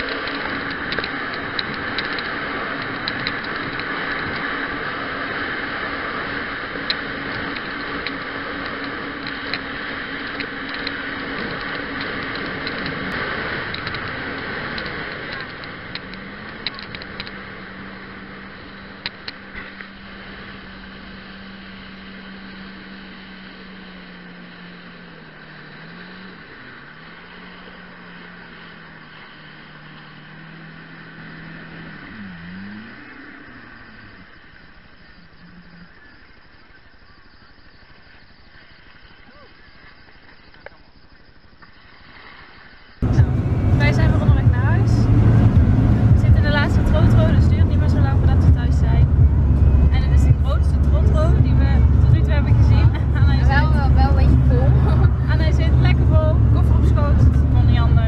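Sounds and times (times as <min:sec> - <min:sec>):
jet ski engine running: 0:00.0 - 0:58.0
water rushing: 0:42.1 - 0:58.0.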